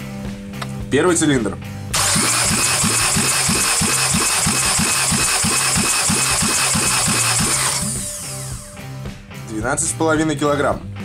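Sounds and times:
engine cranking without firing: 0:02.0 - 0:08.9.

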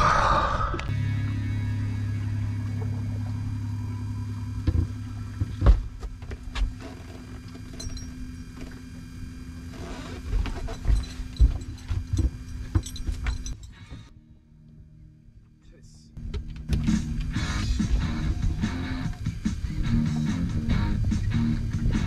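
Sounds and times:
boat motor humming: 0:00.0 - 0:22.0
knocks and thumps on boat: 0:10.3 - 0:13.5.

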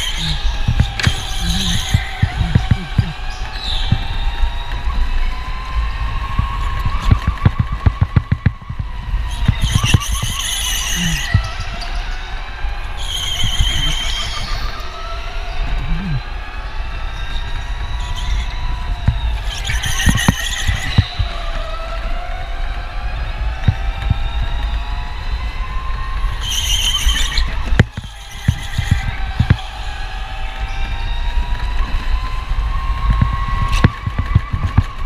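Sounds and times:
tyres squealing: 0:00.0 - 0:03.3, 0:09.4 - 0:11.7, 0:13.2 - 0:14.7
electric motor whine: 0:00.0 - 0:35.0
wind rumble on microphone: 0:00.0 - 0:35.0
rapid knocks: 0:00.7 - 0:03.2, 0:06.3 - 0:11.6, 0:19.9 - 0:21.3, 0:33.0 - 0:35.0.

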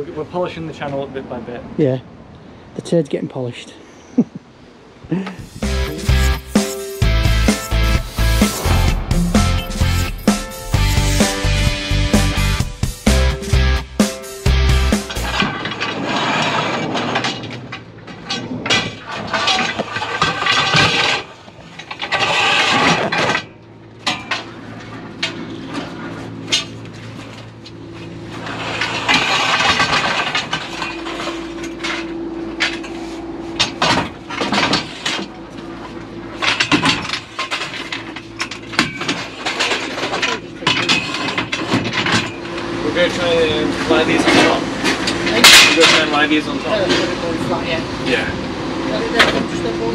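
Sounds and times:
tools clattering: 0:05.4 - 0:08.7, 0:15.0 - 0:25.9, 0:36.4 - 0:42.6, 0:44.2 - 0:46.2
van sliding door opening: 0:05.4 - 0:27.5.

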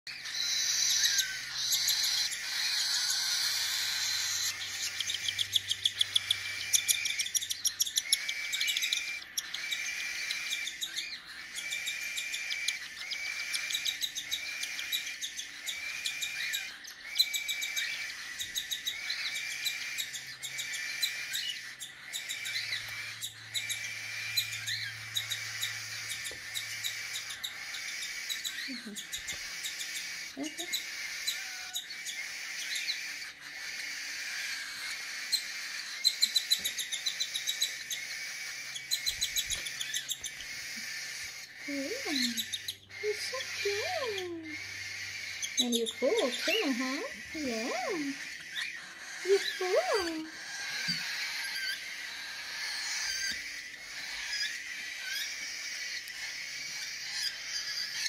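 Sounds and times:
bird chick begging calls: 0:00.1 - 0:58.0.

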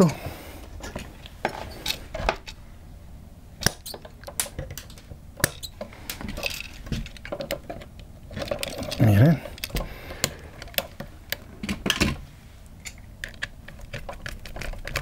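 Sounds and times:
wire cutters snipping wire: 0:03.6 - 0:06.2.

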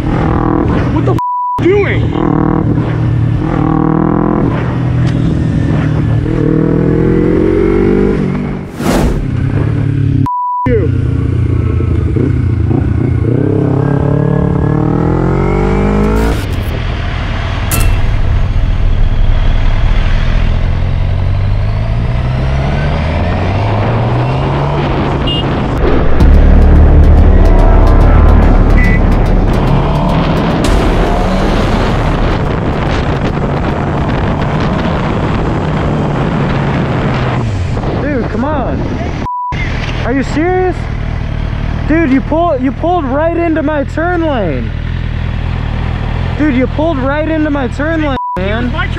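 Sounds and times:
motorcycle engine accelerating: 0:00.0 - 0:01.2, 0:02.0 - 0:10.3, 0:10.9 - 0:38.1
wind rushing over microphone: 0:18.6 - 0:26.2, 0:29.4 - 0:39.3.

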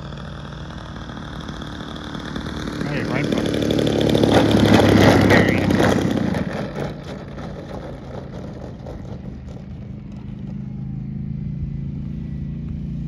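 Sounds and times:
model airplane engine idling: 0:00.0 - 0:11.4.

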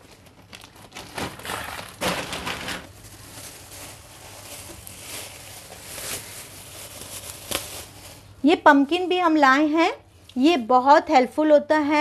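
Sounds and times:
plastic bags crinkling: 0:00.0 - 0:08.4.

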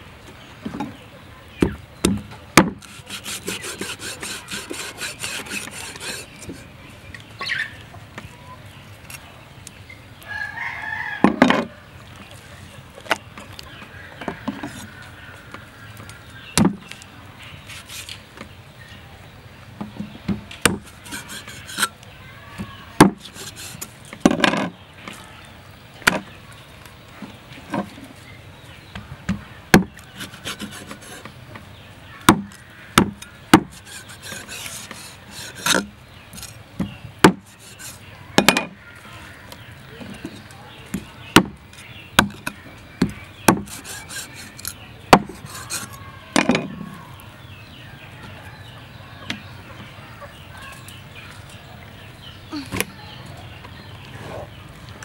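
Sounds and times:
knife cutting and scraping flesh: 0:02.7 - 0:06.7, 0:17.6 - 0:18.2, 0:20.7 - 0:22.0, 0:23.1 - 0:23.9, 0:29.9 - 0:31.3, 0:32.5 - 0:36.6, 0:37.3 - 0:38.1, 0:43.5 - 0:46.0.

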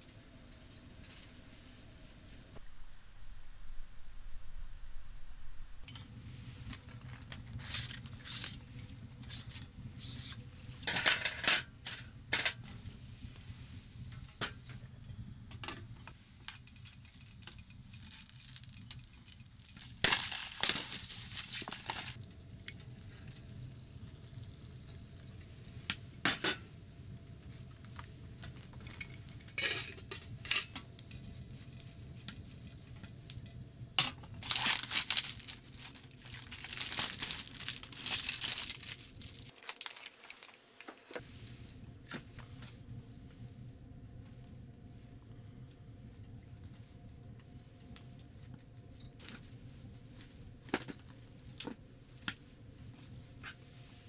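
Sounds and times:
steady low hum: 0:00.0 - 0:39.5, 0:41.1 - 0:54.0
metal utensils clinking on pan: 0:29.5 - 0:30.8.

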